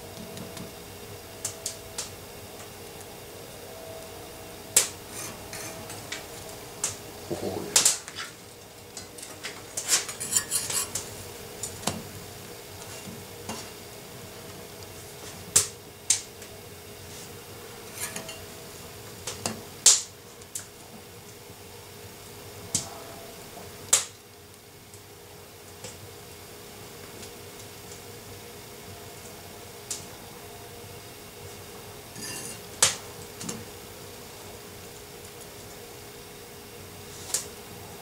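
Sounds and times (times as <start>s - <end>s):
faint hum: 0.0s - 38.0s
fork clinking on cast iron: 17.8s - 18.5s, 32.2s - 32.6s.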